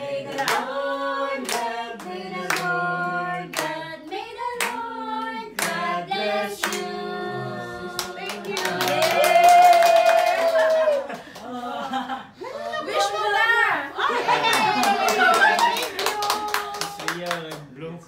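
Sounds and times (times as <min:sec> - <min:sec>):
group singing a celebration song: 0:00.0 - 0:09.8, 0:14.0 - 0:17.0
people clapping in time: 0:08.0 - 0:11.6, 0:14.4 - 0:17.7.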